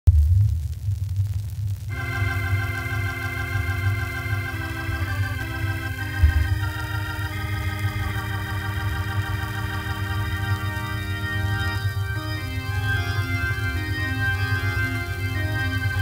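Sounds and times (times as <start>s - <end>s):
rumbling low bass: 0.1s - 1.9s
sustained organ chords: 1.9s - 16.0s
low thump: 6.2s - 6.8s.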